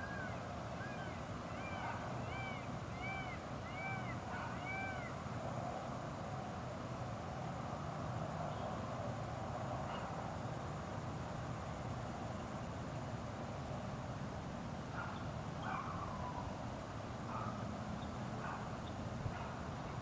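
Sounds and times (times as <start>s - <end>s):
steady hiss: 5.1s - 20.0s.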